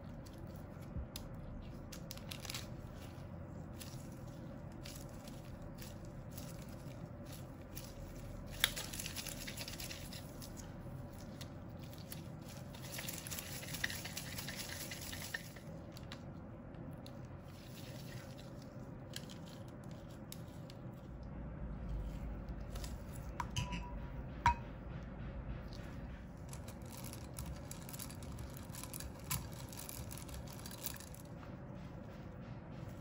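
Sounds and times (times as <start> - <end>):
parchment paper rustling: 0.0 - 16.3, 26.4 - 31.4
gloved hands squishing dough: 0.0 - 23.5, 25.7 - 33.0.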